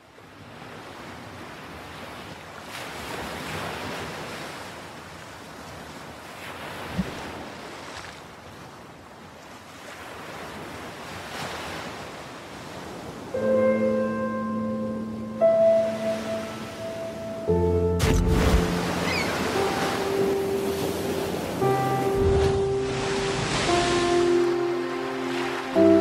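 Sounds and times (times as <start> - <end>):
sea waves washing: 9.7 - 26.0
music with held notes: 13.4 - 26.0.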